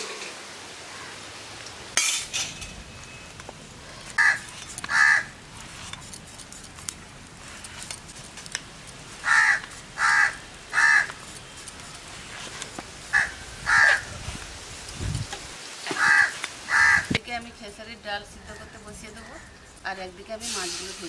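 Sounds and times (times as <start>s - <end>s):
crow cawing: 4.2s - 5.3s, 9.2s - 11.2s, 13.1s - 14.1s, 15.9s - 17.2s.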